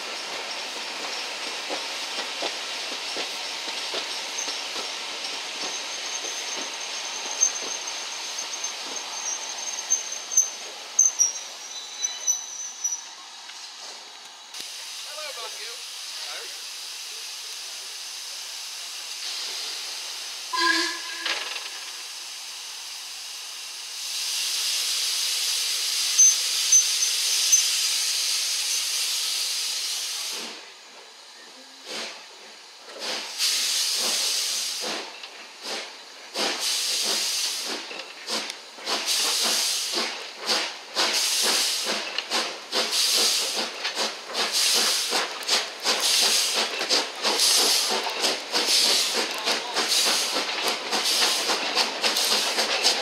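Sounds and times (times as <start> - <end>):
steam hissing: 0.0 - 53.0
steam locomotive whistle toot: 20.5 - 21.7
locomotive exhaust chuffs: 32.8 - 53.0.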